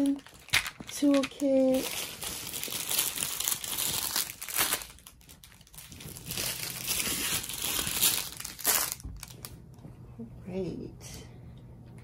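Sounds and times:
plastic bags crinkling: 0.0s - 9.6s.

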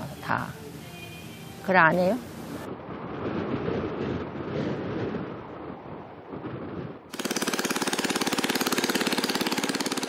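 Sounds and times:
soft outdoor noise: 0.0s - 7.2s.

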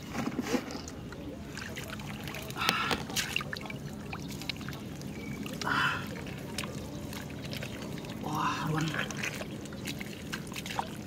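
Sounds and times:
hands splashing in muddy water: 0.7s - 11.0s
water trickling: 0.8s - 11.0s.

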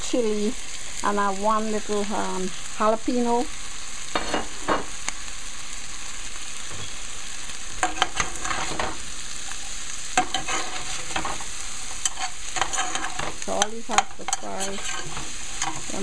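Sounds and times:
fish sizzling in oil: 0.0s - 16.0s
spoon scraping a pan: 4.1s - 5.0s, 7.7s - 16.0s.

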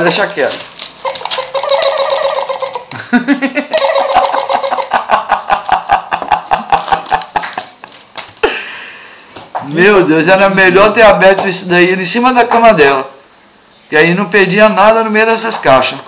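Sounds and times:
toy giggling and chatter: 1.0s - 2.9s, 3.7s - 7.2s.

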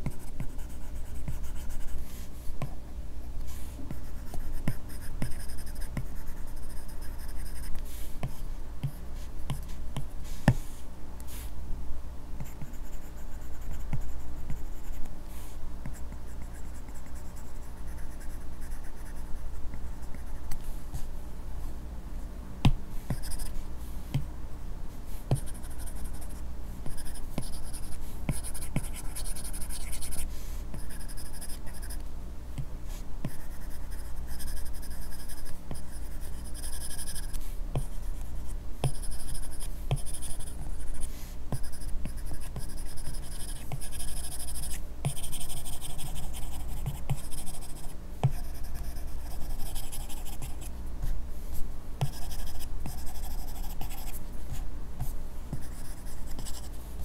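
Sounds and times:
pen tapping on screen: 39.9s - 40.2s.

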